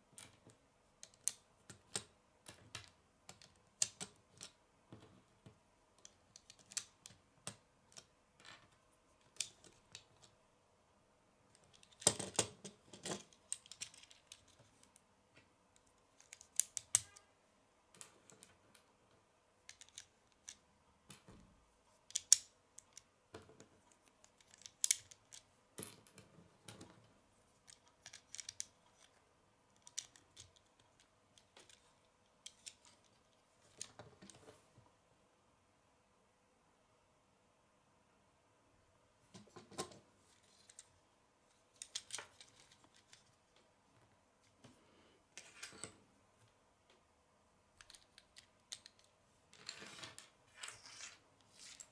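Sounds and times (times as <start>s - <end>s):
plastic bricks clicking together: 19.7s - 20.6s, 23.9s - 25.5s, 27.6s - 29.2s, 29.8s - 32.9s.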